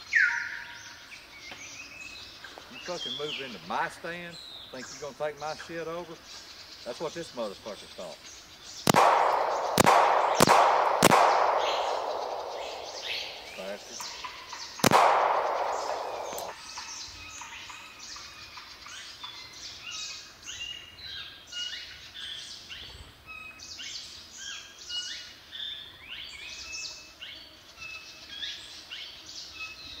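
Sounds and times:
small birds chirping: 0.0s - 30.0s
gunshot: 8.9s - 16.6s.

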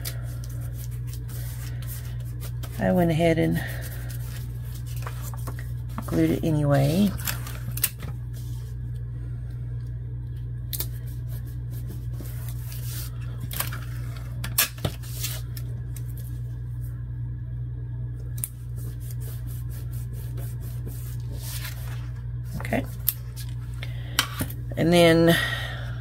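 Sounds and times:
steady low hum: 0.0s - 26.0s
paper card rustling: 3.7s - 8.7s, 20.8s - 23.7s.

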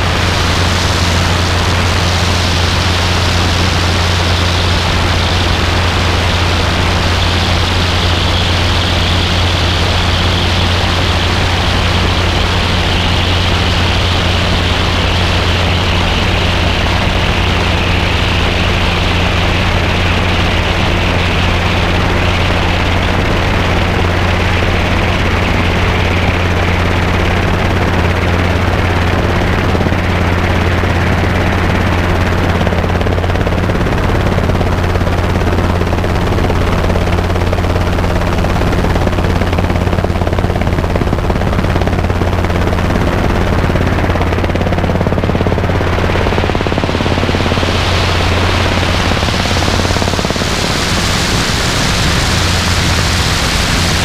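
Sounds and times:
helicopter engine and rotor drone: 0.0s - 54.0s
rushing airflow hiss: 46.4s - 54.0s.

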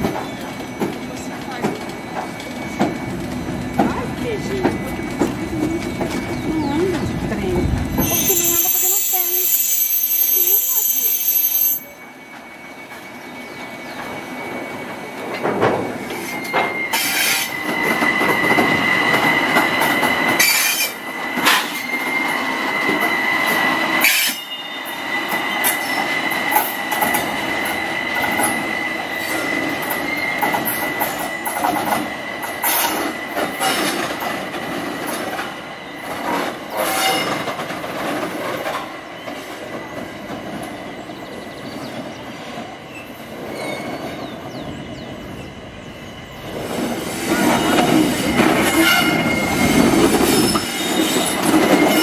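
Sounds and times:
train wheels squealing: 0.0s - 52.0s
wheels clanking over rail joints: 15.2s - 24.5s.

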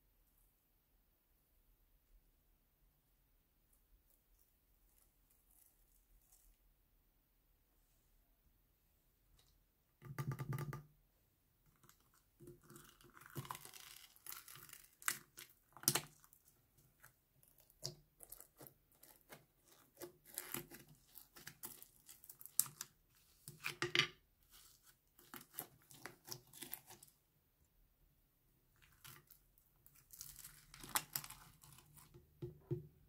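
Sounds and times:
slime squishing with crackles and pops: 11.7s - 23.8s, 24.5s - 27.2s, 28.7s - 32.4s.

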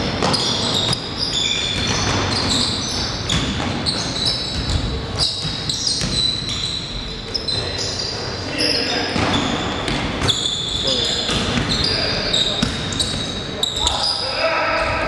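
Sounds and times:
basketball bouncing on court: 0.0s - 6.8s, 9.2s - 13.4s
sneaker squeaks: 0.0s - 15.0s.

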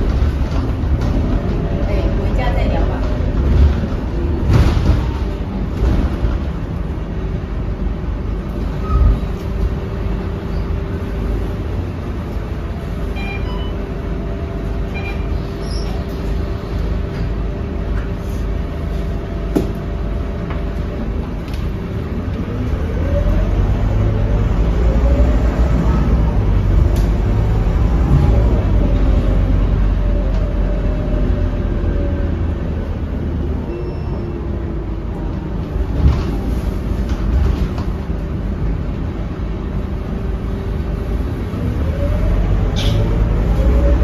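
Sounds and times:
bus engine idling: 0.0s - 44.0s
bus engine revving: 13.8s - 33.6s, 34.4s - 44.0s
short electronic beeps: 14.9s - 15.3s.

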